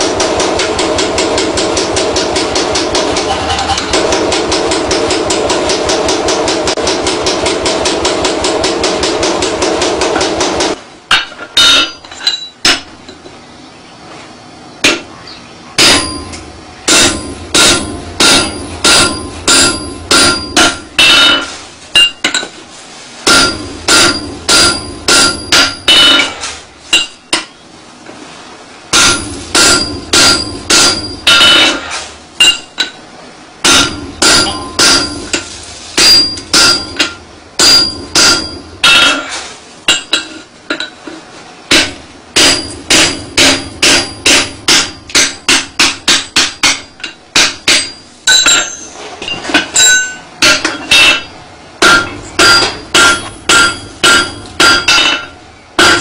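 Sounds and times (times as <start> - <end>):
power hammer pounding iron: 0.0 - 13.2, 14.8 - 15.1, 15.8 - 22.5, 23.2 - 27.6, 28.9 - 33.0, 33.6 - 41.0, 41.7 - 56.0
hammer ringing on anvil: 11.1 - 13.2, 15.8 - 22.5, 23.3 - 26.4, 28.9 - 33.0, 33.6 - 39.3, 41.7 - 49.0, 49.8 - 56.0.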